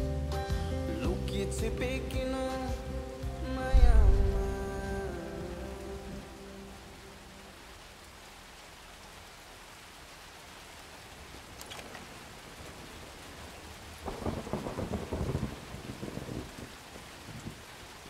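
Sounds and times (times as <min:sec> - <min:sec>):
steady rain falling: 0:00.0 - 0:18.0
thunder rumbling: 0:03.7 - 0:06.4, 0:12.7 - 0:17.7.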